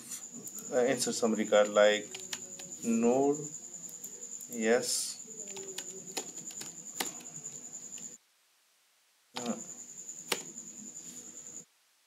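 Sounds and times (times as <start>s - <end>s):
thin steady high whine: 0.0s - 8.3s, 9.4s - 11.8s
faint hiss: 0.0s - 12.0s.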